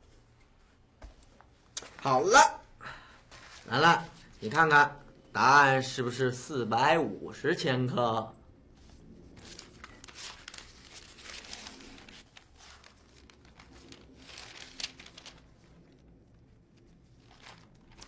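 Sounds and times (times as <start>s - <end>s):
paper rustling and crinkling: 3.3s - 4.7s, 8.7s - 18.0s.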